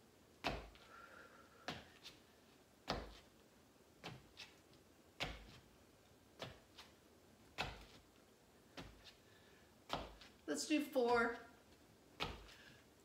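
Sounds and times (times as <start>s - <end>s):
foot thumping on wooden floor: 12.2s - 12.7s.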